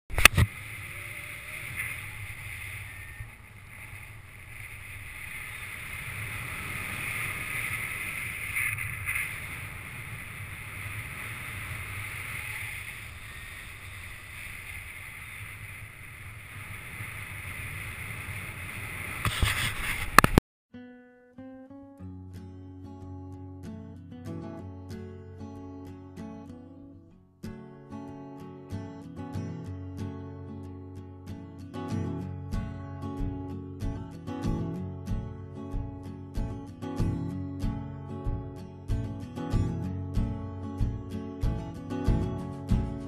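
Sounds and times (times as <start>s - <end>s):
wind rushing over microphone: 0.1s - 20.4s.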